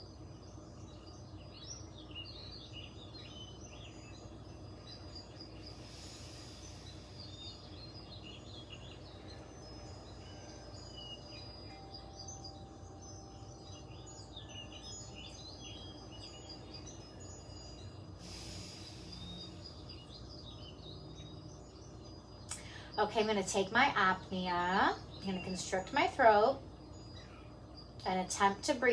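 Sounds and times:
low steady hum: 0:00.0 - 0:28.9
small birds chirping: 0:00.0 - 0:28.9
deep breath hissing: 0:05.5 - 0:08.3, 0:18.2 - 0:20.0.

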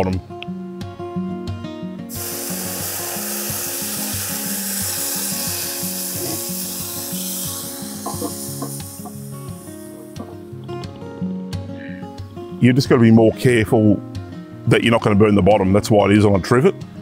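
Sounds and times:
stock hissing on hot metal: 0:02.1 - 0:10.3
cast-iron lid clanking: 0:08.0 - 0:09.2.

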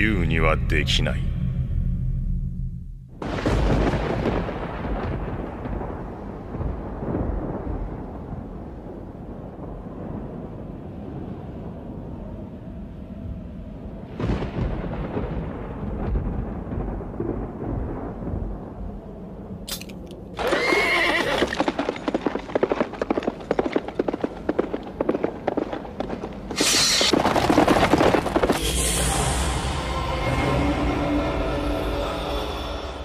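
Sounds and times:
low rumble: 0:00.0 - 0:20.3
horse whinnying: 0:20.4 - 0:21.8
galloping hooves: 0:20.4 - 0:28.6.

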